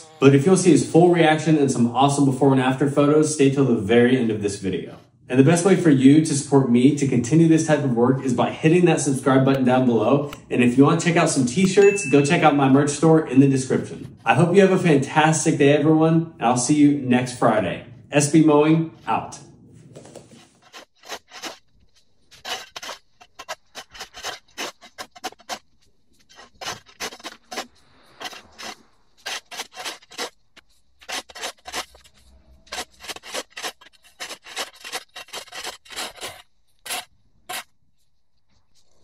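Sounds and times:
shovel scraping turf on concrete: 20.0s - 37.7s.

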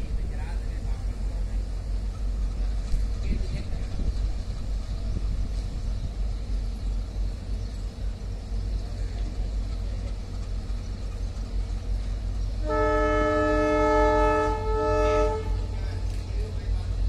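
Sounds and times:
train rumbling: 0.0s - 17.0s
train horn chord: 12.6s - 15.8s.

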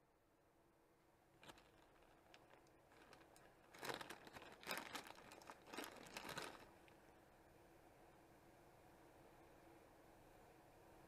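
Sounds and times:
plastic bag crinkling: 1.4s - 7.0s.

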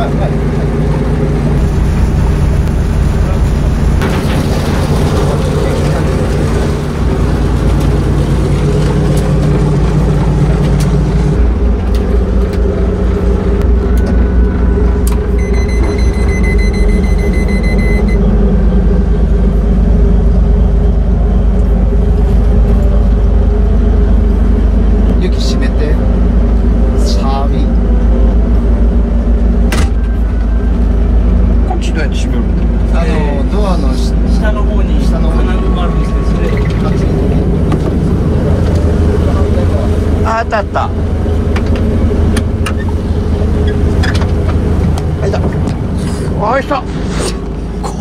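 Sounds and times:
diesel boat engine running: 0.0s - 48.0s
high electronic beep: 15.3s - 18.2s, 35.2s - 37.5s.

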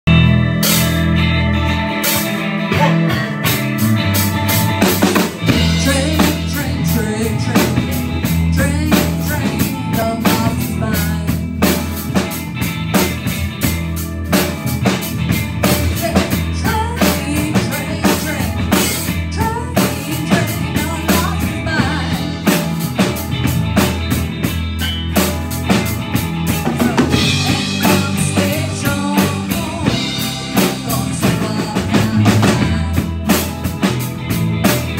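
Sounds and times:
live rock band playing: 0.0s - 34.9s
woman singing: 5.5s - 11.8s, 15.8s - 22.6s, 26.8s - 33.6s.

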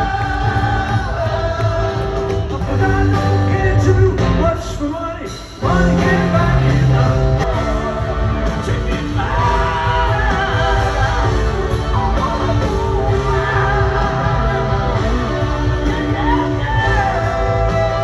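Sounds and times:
male vocalist singing: 0.0s - 18.0s
rock band playing: 0.0s - 18.0s.

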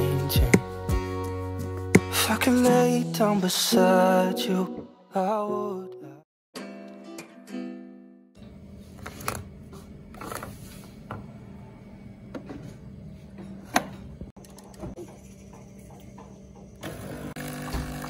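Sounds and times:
soft guitar-backed song: 0.0s - 8.2s.

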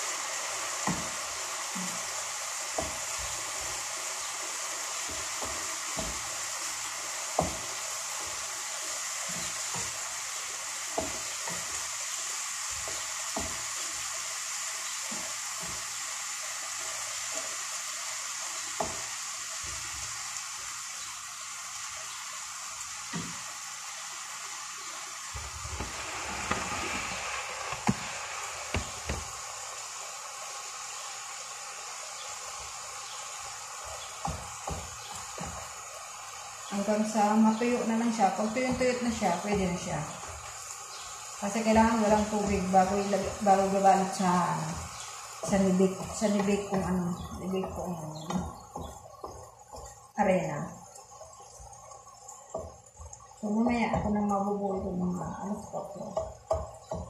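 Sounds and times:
food sizzling in pan: 0.0s - 57.0s
spatula knocking frying pan: 0.8s - 16.2s, 18.3s - 20.1s, 27.7s - 29.4s, 33.4s - 36.6s, 37.7s - 50.0s, 52.5s - 53.1s, 56.0s - 57.0s.

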